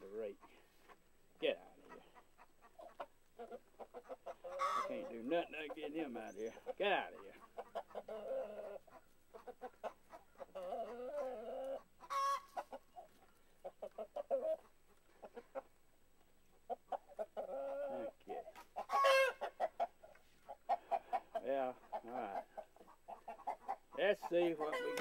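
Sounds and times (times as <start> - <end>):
chickens clucking and squawking: 0.0 - 25.0.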